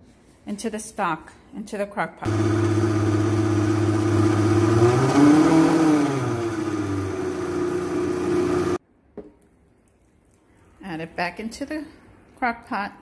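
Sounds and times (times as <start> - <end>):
blender motor running: 2.3 - 8.8.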